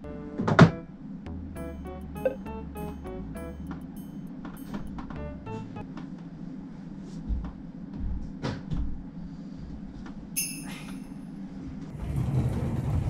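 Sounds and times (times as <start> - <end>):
background music: 0.0 - 5.9
short high ringing tone: 1.6 - 5.0, 10.4 - 11.3.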